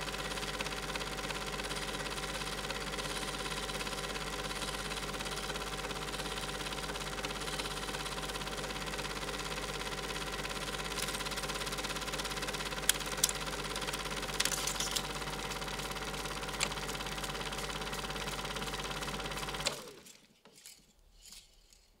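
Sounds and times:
film projector whirring: 0:00.0 - 0:20.1.

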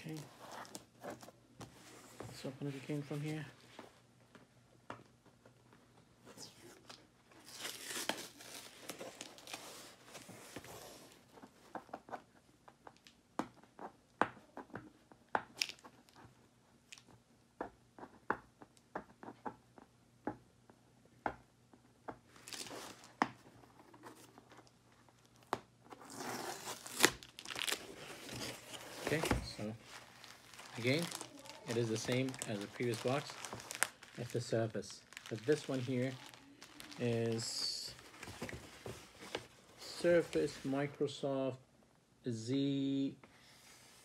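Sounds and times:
tape and cardboard ripping: 0:07.4 - 0:09.6, 0:25.9 - 0:37.6.

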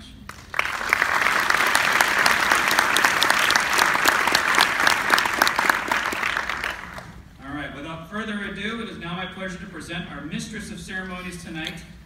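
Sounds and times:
audience applauding: 0:00.3 - 0:07.2.

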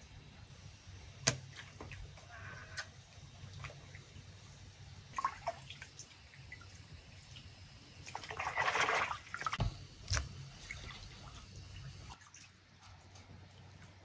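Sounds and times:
water splashing in a metal basin: 0:05.1 - 0:12.7.

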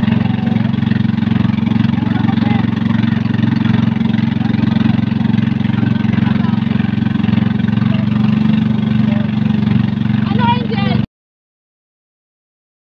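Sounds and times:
boat engine running: 0:00.0 - 0:11.1
water splashing past hull: 0:00.0 - 0:11.1.

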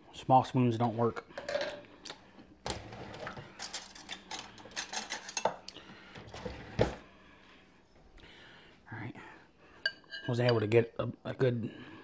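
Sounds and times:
metal cutlery clinking: 0:03.5 - 0:05.8.

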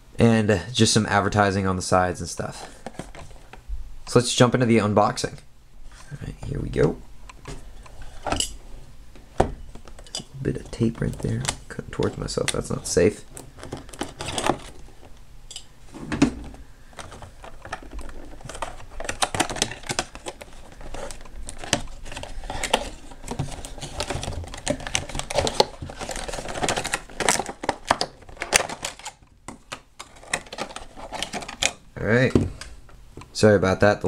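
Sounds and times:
plastic packaging crinkling: 0:09.7 - 0:15.2, 0:16.5 - 0:31.8.

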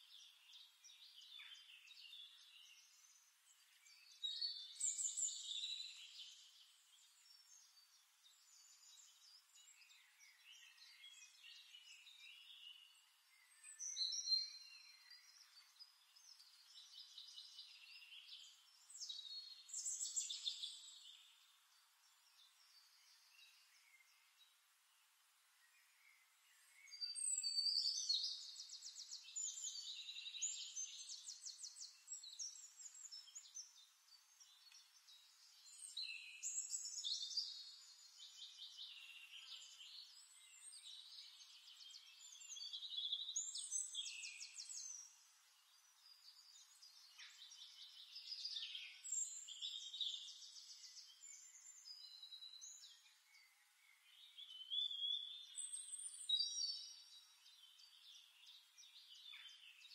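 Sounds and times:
songbird trilling and chirping: 0:00.0 - 0:24.5, 0:26.1 - 0:59.9.

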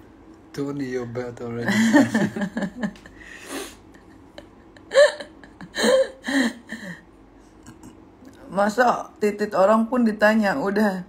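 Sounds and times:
people laughing: 0:01.7 - 0:03.2.

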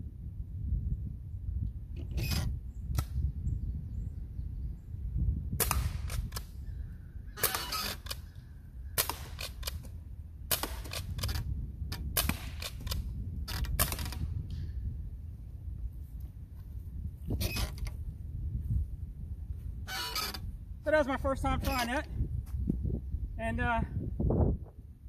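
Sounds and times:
pellet rifle cracks: 0:05.6 - 0:06.5, 0:09.0 - 0:11.4, 0:12.0 - 0:14.3.

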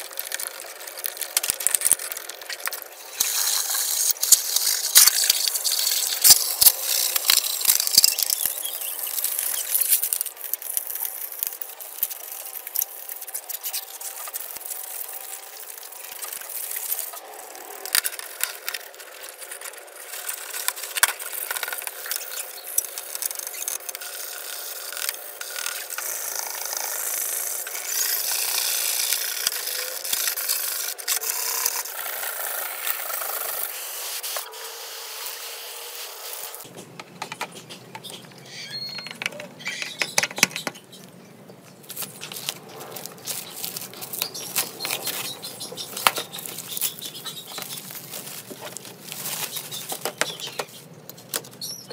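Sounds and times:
plastic film peeling and crinkling: 0:00.0 - 0:36.7, 0:41.8 - 0:51.9
cloth scrubbing plastic and metal: 0:41.9 - 0:51.4.

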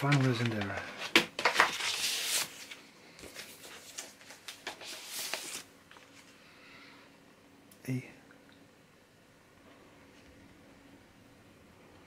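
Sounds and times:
paper sleeve rustling and sliding: 0:00.0 - 0:06.2.

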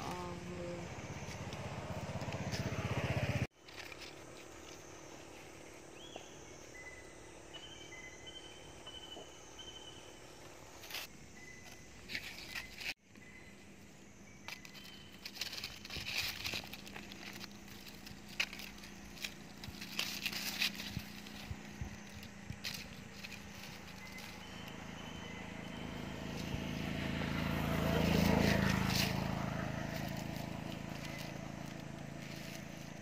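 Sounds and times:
rustling and crackling: 0:03.5 - 0:05.8, 0:14.4 - 0:24.9, 0:26.3 - 0:33.0.

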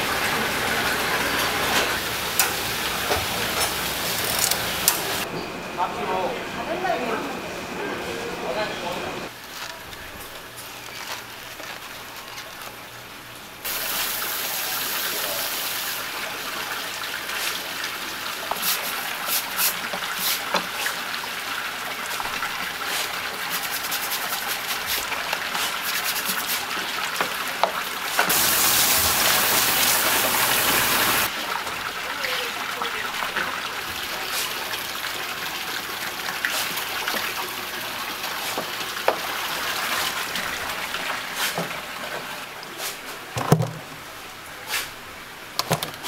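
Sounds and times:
water spraying onto tiled floor: 0:13.6 - 0:41.9.

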